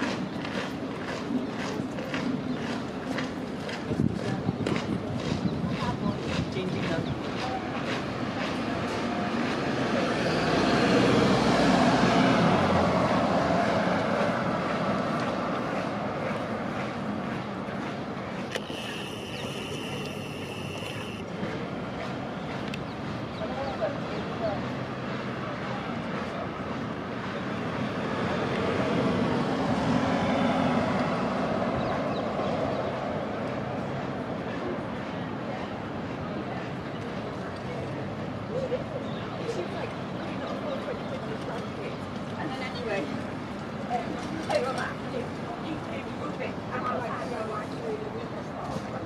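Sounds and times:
passing vehicle rumble: 0:08.1 - 0:34.9
vehicle passing: 0:09.0 - 0:22.0.

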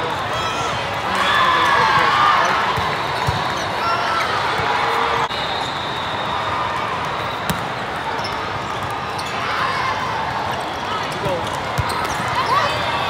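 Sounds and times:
echoing din of sports hall: 0:00.0 - 0:13.0
court shoes squeaking: 0:01.4 - 0:06.1, 0:06.8 - 0:09.7, 0:10.4 - 0:13.0
volleyball hits: 0:07.4 - 0:07.8.

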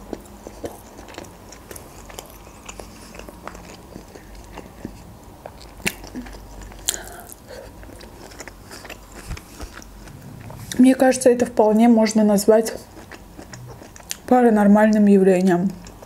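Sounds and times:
chewing and biting food: 0:00.0 - 0:10.2, 0:12.7 - 0:14.3, 0:15.7 - 0:16.0.

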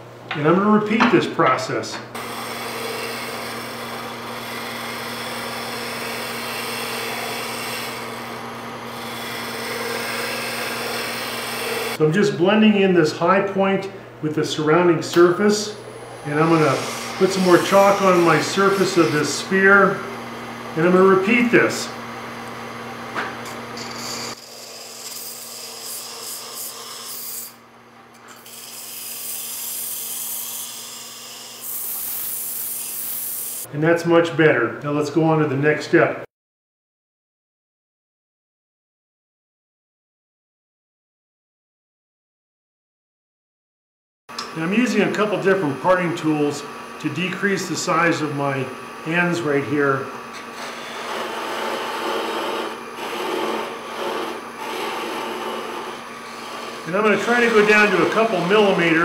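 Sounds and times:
lathe motor hum: 0:02.2 - 0:12.0, 0:15.6 - 0:27.6, 0:44.3 - 0:59.0
scraper scraping wood on lathe: 0:02.2 - 0:12.0, 0:15.9 - 0:20.1, 0:23.5 - 0:27.6, 0:50.2 - 0:59.0
sandpaper rubbing spinning wood: 0:16.3 - 0:19.9, 0:23.8 - 0:27.6, 0:50.5 - 0:59.0.

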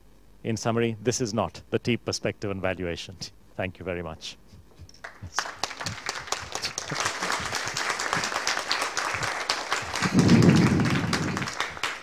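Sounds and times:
audience applauding: 0:05.0 - 0:12.0
low muffled rumble: 0:09.1 - 0:11.8.

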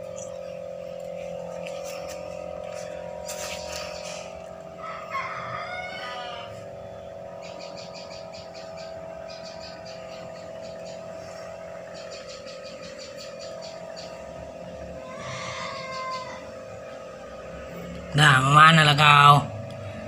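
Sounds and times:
rapid high ticking chirps: 0:00.0 - 0:19.5
steady hum: 0:00.0 - 0:20.0
rooster crowing: 0:03.9 - 0:07.1, 0:14.9 - 0:17.2.

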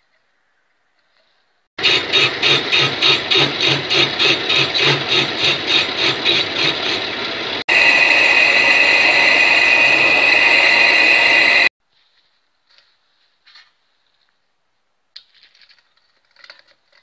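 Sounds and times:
lathe high-pitched whine: 0:01.8 - 0:11.7
lathe pulsing scraping: 0:01.8 - 0:11.7.

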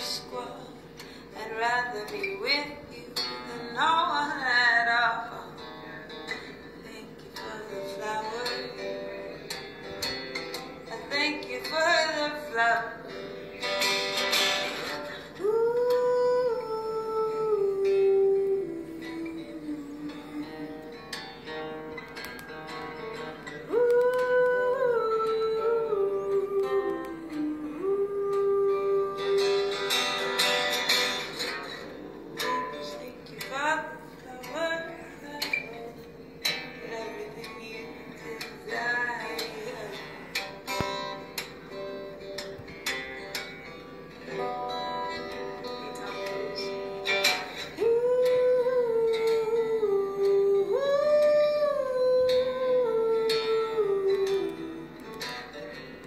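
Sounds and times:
acoustic guitar: 0:00.0 - 0:56.0
woman humming: 0:15.2 - 0:21.1, 0:23.7 - 0:29.9, 0:47.8 - 0:55.1
woman singing long notes: 0:15.2 - 0:21.1, 0:23.6 - 0:30.1, 0:47.6 - 0:55.2.

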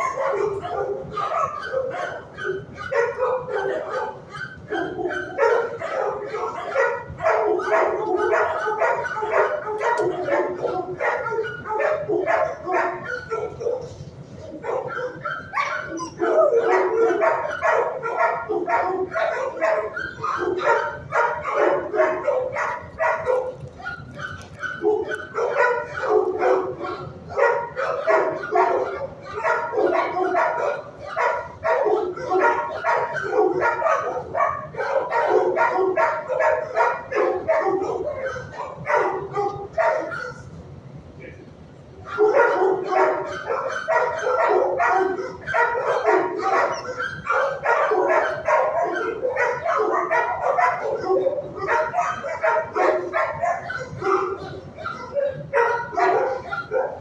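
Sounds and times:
dogs barking: 0:00.0 - 0:40.6, 0:41.2 - 0:57.0.

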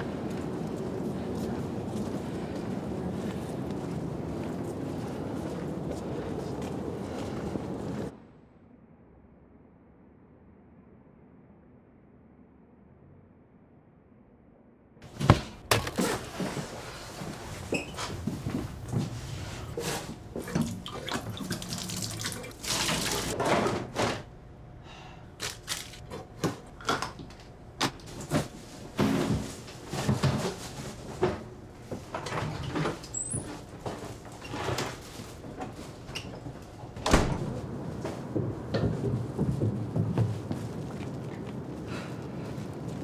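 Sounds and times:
tap water running into sink: 0:20.4 - 0:23.3.

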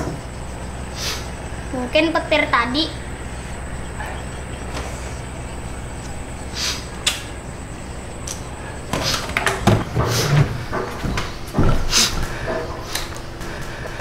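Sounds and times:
low room hum: 0:00.0 - 0:14.0
knocks and thuds of man moving: 0:08.9 - 0:12.8.

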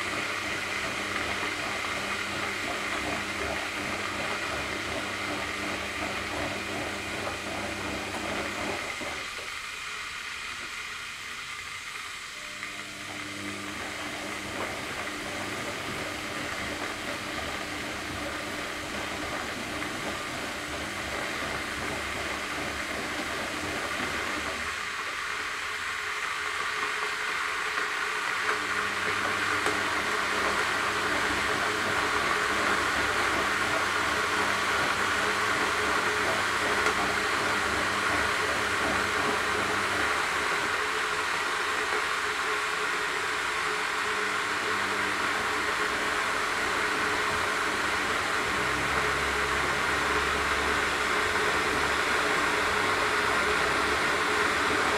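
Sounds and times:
low appliance hum: 0:00.0 - 0:54.9
kettle heating water hiss: 0:07.3 - 0:20.8.

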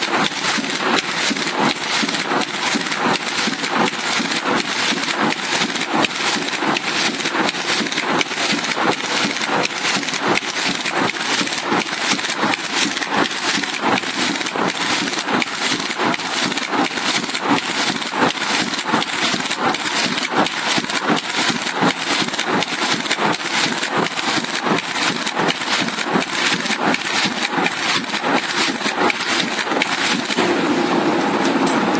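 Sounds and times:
steady machine noise: 0:00.0 - 0:31.9.

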